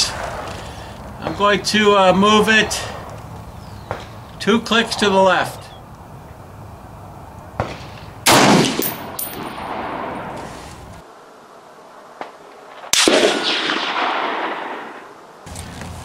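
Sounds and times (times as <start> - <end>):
rifle shots echoing: 7.6 - 10.4, 12.8 - 15.1
light metallic pings: 8.8 - 9.7.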